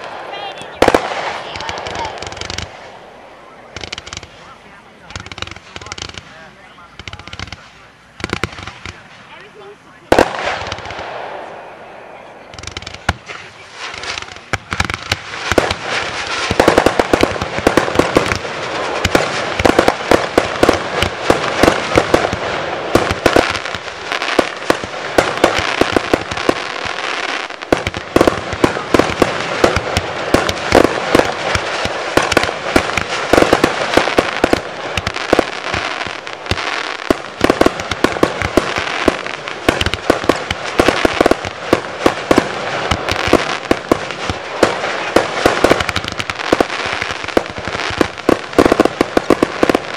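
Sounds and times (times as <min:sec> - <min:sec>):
fireworks popping and crackling: 0:00.0 - 0:49.9
firework bang: 0:10.1 - 0:11.7, 0:12.4 - 0:49.9.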